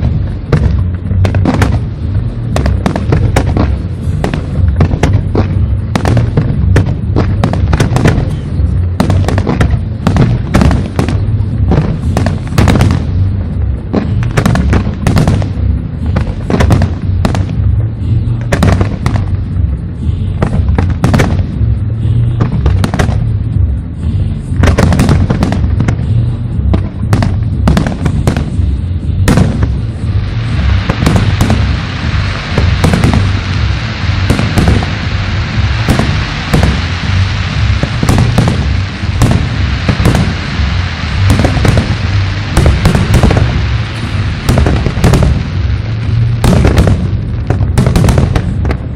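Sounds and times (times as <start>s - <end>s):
deep rumble of booms: 0.0s - 48.9s
firework bangs: 0.0s - 48.9s
steady hiss: 0.0s - 48.9s.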